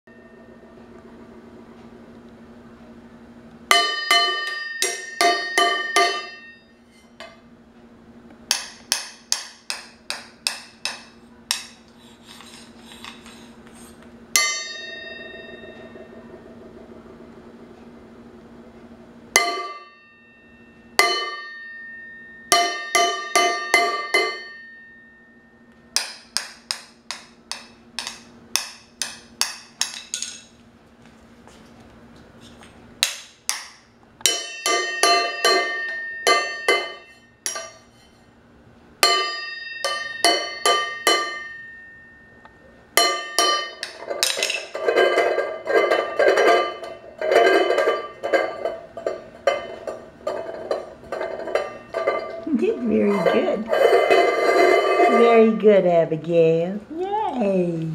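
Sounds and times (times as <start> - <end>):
metal pot drummed ringing: 3.7 - 6.9, 14.3 - 17.3, 19.3 - 27.2, 34.2 - 37.8, 39.0 - 55.6.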